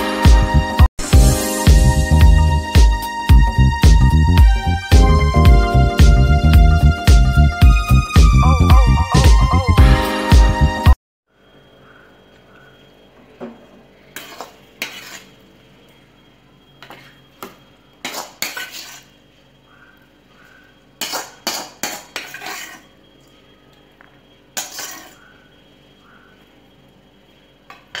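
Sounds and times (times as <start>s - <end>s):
spoon scraping and knocking pan: 13.5s - 15.4s, 16.8s - 19.1s, 21.0s - 22.9s, 24.6s - 25.2s.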